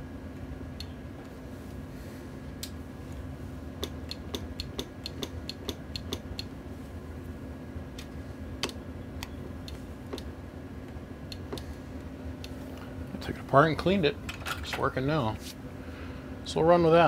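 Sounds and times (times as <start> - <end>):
steady electrical hum: 0.0 - 17.0
sharp mechanical clicks: 3.8 - 6.5.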